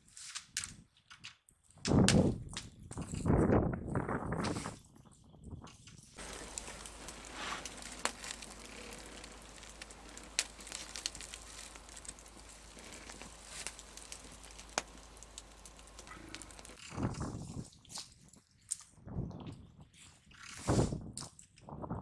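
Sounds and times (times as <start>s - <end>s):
campfire crackling: 6.2s - 17.1s.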